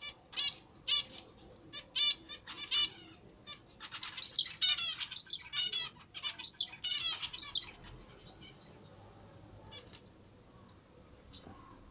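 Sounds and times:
zebra finch singing: 0.0 - 9.0
faint bird chirps: 0.0 - 11.9.

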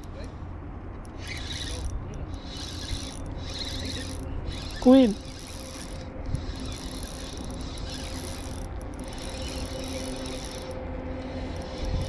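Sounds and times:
fishing reel whirring: 1.0 - 12.0.

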